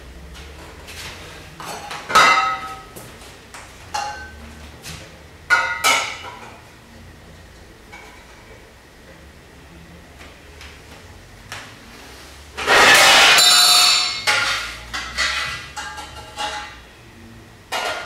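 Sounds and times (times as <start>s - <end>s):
metal dishes clinking: 3.9s - 4.4s, 12.6s - 16.8s, 17.7s - 18.0s
metal tray scraping and ringing: 12.7s - 16.8s.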